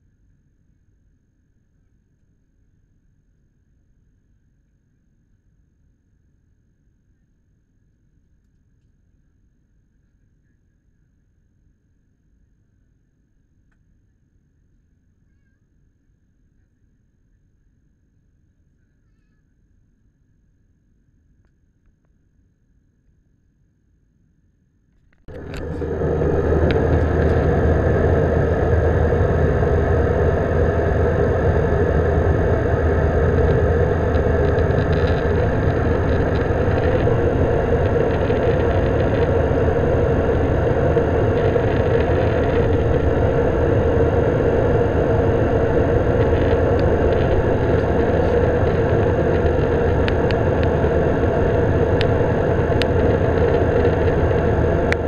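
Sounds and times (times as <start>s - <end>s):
thin high whine: 25.2s - 55.0s
jet engine and airflow noise: 25.3s - 55.0s.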